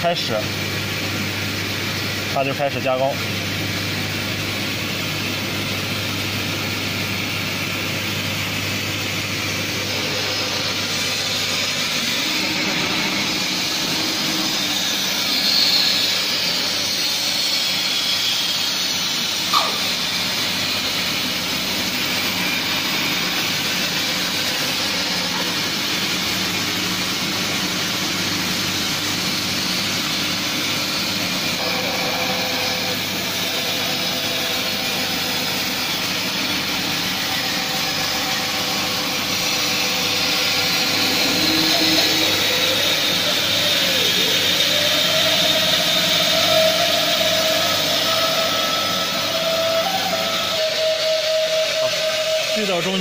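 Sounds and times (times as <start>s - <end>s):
band saw cutting wood: 5.2s - 53.0s
sharp click: 19.5s - 19.8s.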